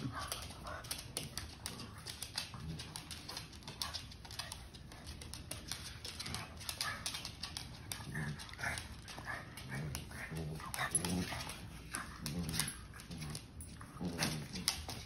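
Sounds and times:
claws scrabbling on wooden floor: 0:00.0 - 0:15.0
dogs growling and grunting: 0:06.2 - 0:15.0.

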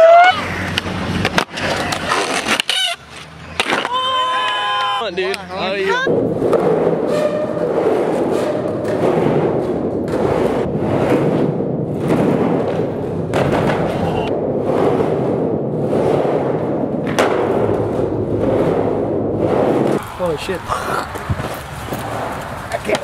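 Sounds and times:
skateboard wheels rolling in a pipe: 0:05.6 - 0:23.0.

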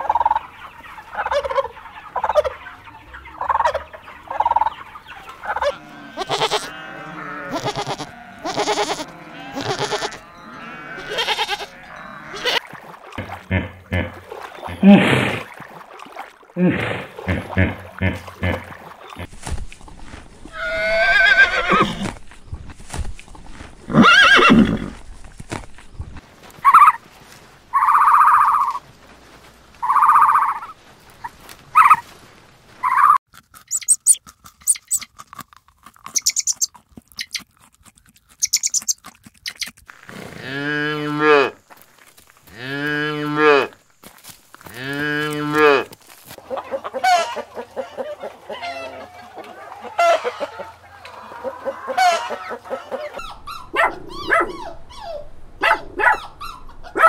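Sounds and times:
calves mooing: 0:05.6 - 0:14.3, 0:42.5 - 0:43.8, 0:44.7 - 0:46.0
high chirps: 0:32.9 - 0:35.1, 0:36.1 - 0:37.4, 0:38.4 - 0:39.7.

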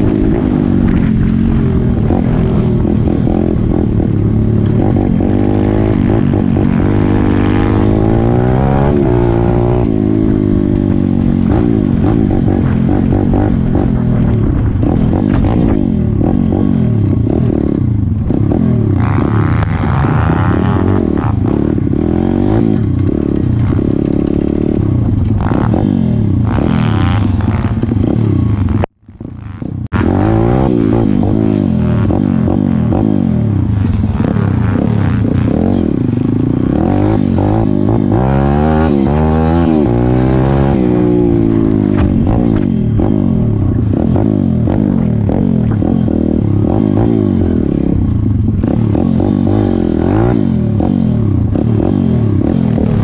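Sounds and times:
small motorbike engine revving: 0:18.5 - 0:53.0.

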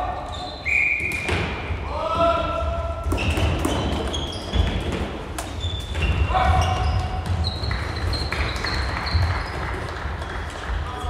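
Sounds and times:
shoes squeaking on court: 0:00.0 - 0:01.4, 0:03.1 - 0:09.8.

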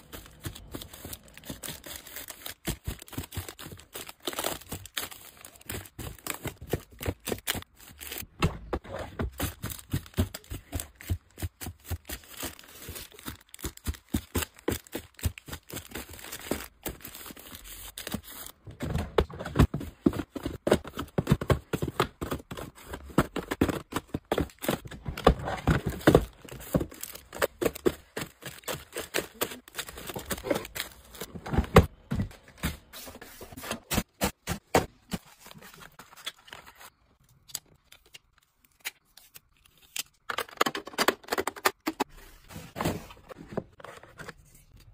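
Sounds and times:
plastic packs crinkling: 0:00.0 - 0:08.2, 0:09.3 - 0:18.7, 0:23.6 - 0:31.9.

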